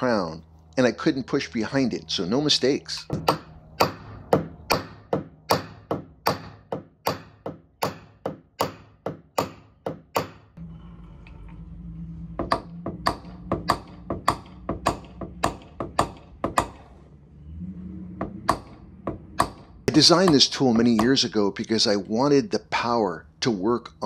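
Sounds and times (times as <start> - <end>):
low steady hum: 0.0 - 24.0
hammer tapping on metal: 3.1 - 10.5, 12.4 - 16.8, 18.2 - 21.3.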